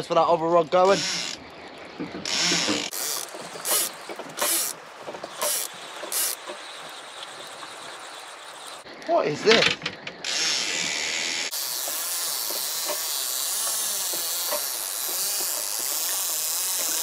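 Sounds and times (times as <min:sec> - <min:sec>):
fishing reel gears whirring and clicking: 0:02.3 - 0:04.8, 0:05.4 - 0:06.4, 0:11.4 - 0:17.0.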